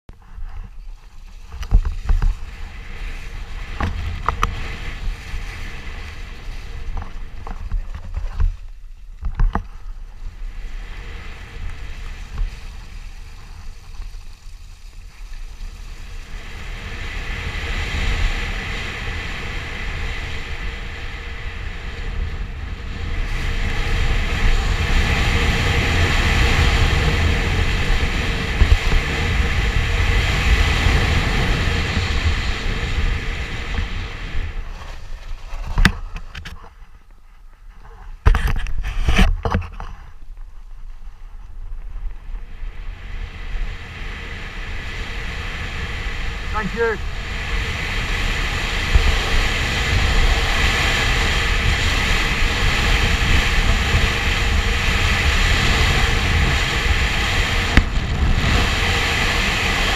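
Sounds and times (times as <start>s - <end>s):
tyre noise on wet dirt: 0.1s - 17.6s
wind rushing over microphone: 0.1s - 59.9s.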